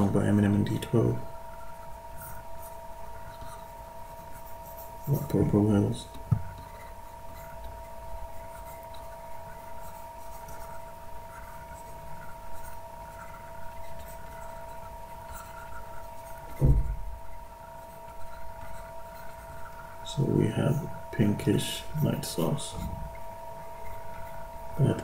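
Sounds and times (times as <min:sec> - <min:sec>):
low room rumble: 0:00.0 - 0:25.0
two-tone electrical whine: 0:00.0 - 0:25.0
stylus rubbing on drawing tablet: 0:06.6 - 0:16.7, 0:17.7 - 0:23.0
low thump: 0:16.6 - 0:17.1.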